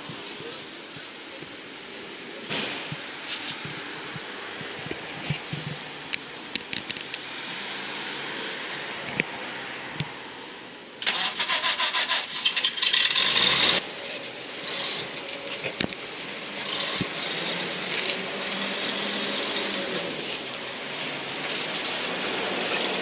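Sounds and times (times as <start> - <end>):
engine starter cranking: 11.0 - 13.8.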